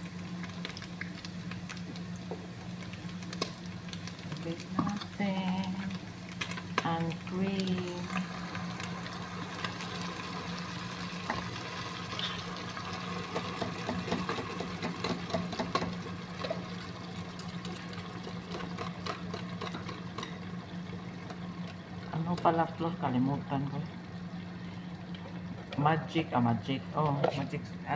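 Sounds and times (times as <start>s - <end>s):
meat sizzling in a frying pan: 0.0s - 21.8s.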